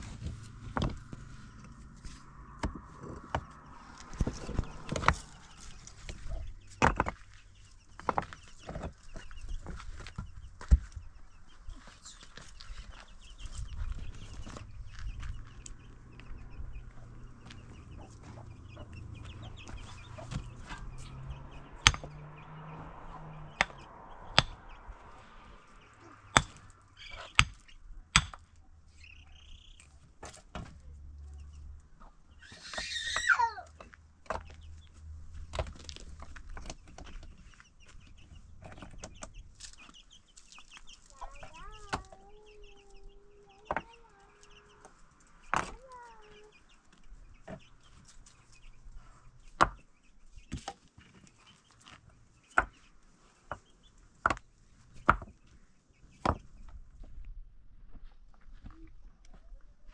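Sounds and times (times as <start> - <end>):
stones knocking and clacking: 0.2 - 1.3, 2.6 - 10.9, 21.8 - 22.1, 26.3 - 26.7
chicken clucking: 11.8 - 21.7, 37.2 - 45.0.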